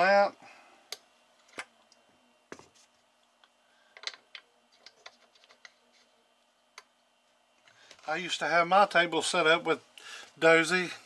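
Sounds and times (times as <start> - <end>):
small objects clicking on tabletop: 4.0 - 5.8.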